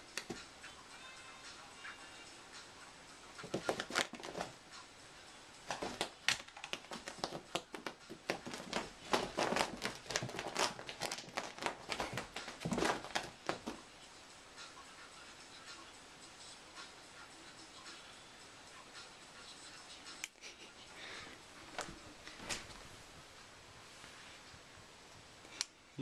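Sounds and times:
kitten claws scrabbling on floor: 3.4 - 4.5, 5.7 - 13.8.

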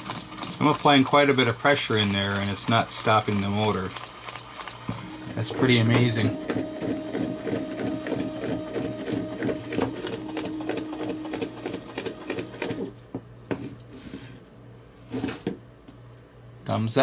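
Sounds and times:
stepper motor whine: 4.8 - 12.9.

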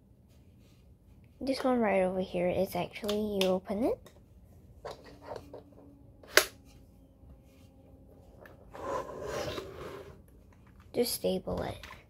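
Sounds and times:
keyboard scraping on table: 8.7 - 10.2.

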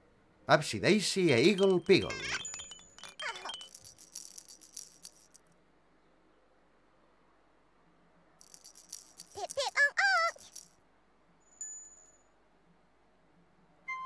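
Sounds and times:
shaker-like rattling: 1.4 - 5.4, 8.4 - 10.7.

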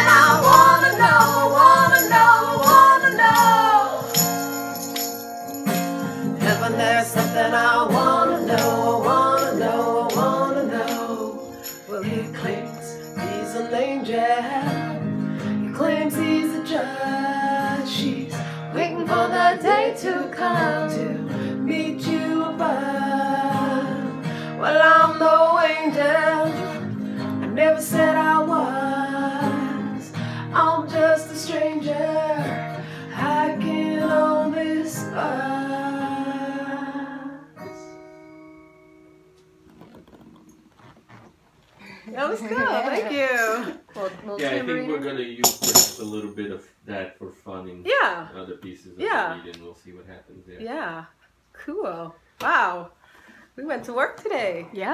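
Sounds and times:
woman singing: 0.0 - 4.5, 6.4 - 26.8, 27.4 - 37.5
acoustic guitar strumming: 0.0 - 40.4.

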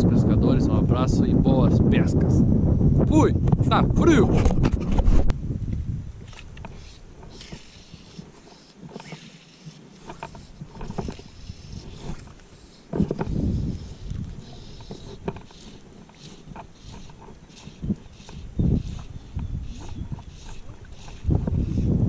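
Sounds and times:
wind buffeting microphone: 0.0 - 8.3, 10.0 - 22.0
fly line rustling and clicking: 6.2 - 21.6.

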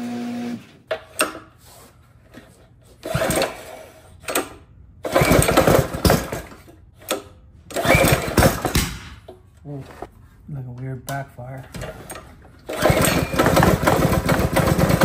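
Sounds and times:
engine cranking: 12.7 - 15.0.

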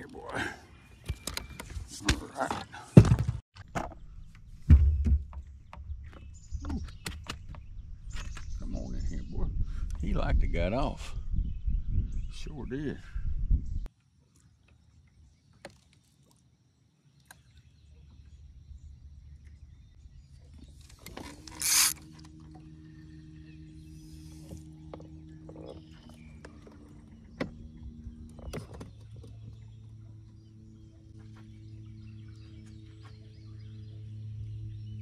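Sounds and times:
electric motor humming: 21.4 - 22.0.

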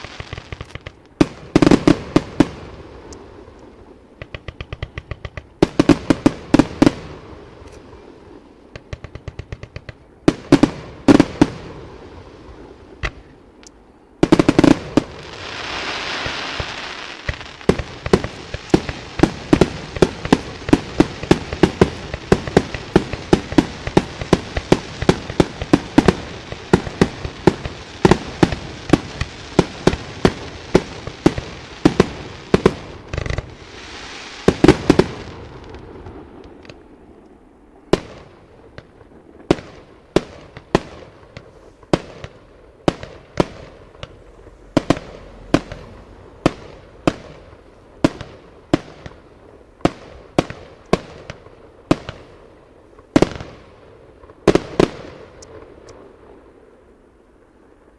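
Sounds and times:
firework hiss: 0.0 - 13.4, 14.2 - 37.1
fireworks bangs: 0.0 - 57.9.

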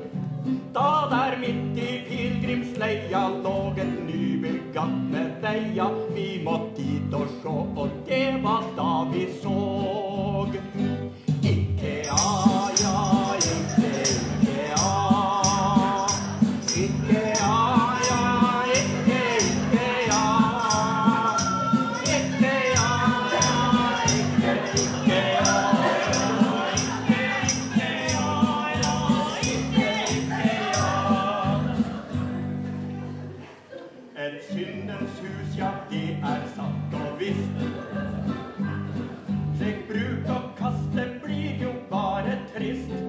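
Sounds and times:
strummed acoustic guitar: 0.0 - 33.4, 34.5 - 43.0
tambourine beat: 11.4 - 32.1
woman singing slow song: 20.3 - 32.0.

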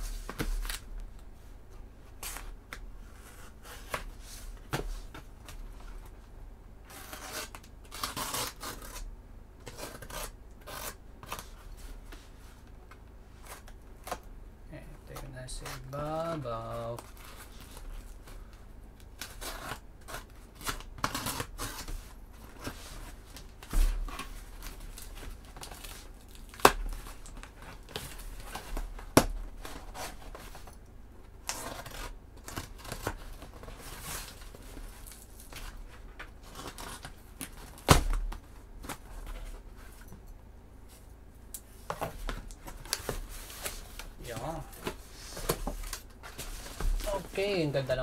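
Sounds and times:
tape and cardboard rustling: 0.0 - 14.3, 15.0 - 40.3, 40.9 - 48.0
packing tape peeling and tearing: 6.9 - 11.6, 19.0 - 21.9, 23.3 - 30.8, 31.4 - 35.7.

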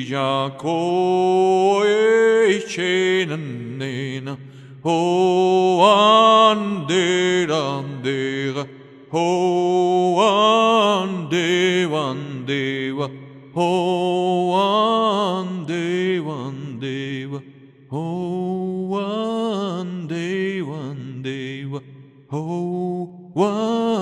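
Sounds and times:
man breathing: 4.4 - 4.8.

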